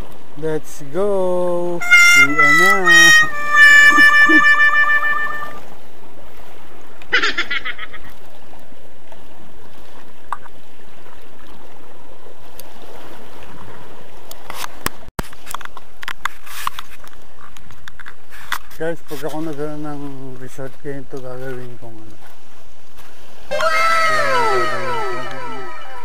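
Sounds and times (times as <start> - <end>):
sea water rushing: 0.0 - 15.1, 21.6 - 26.0
wind: 0.0 - 26.0
held musical tone: 1.8 - 5.6, 23.5 - 26.0.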